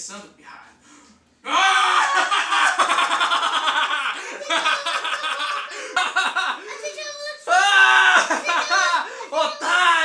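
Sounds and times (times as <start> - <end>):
man laughing loudly: 1.5 - 6.6.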